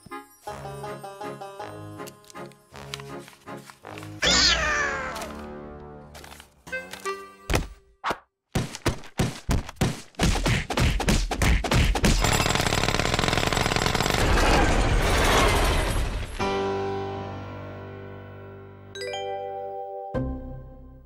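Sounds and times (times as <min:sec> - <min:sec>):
cartoon stomping thuds: 0:08.5 - 0:12.2.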